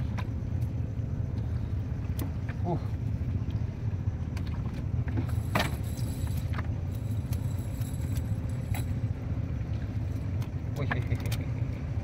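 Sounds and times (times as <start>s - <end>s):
steady low rumble: 0.0s - 12.0s
chain weights clinking: 5.2s - 9.1s.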